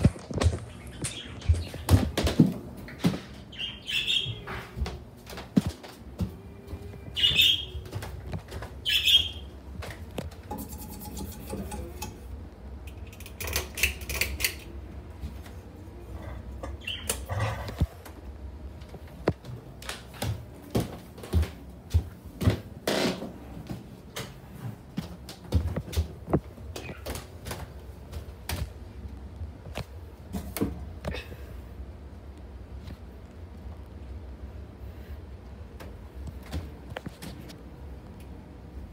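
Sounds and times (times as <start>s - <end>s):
ceiling fan humming and clicking: 0.0s - 38.9s
footsteps on wooden stairs: 1.4s - 3.5s, 19.3s - 28.7s.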